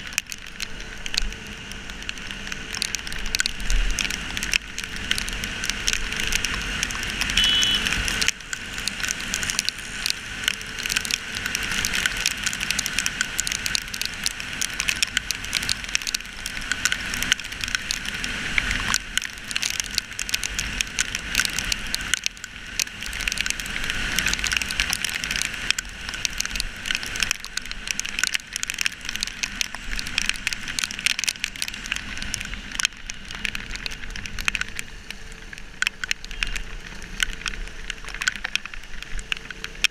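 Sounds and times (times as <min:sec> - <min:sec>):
wet road noise: 0:00.0 - 0:39.9.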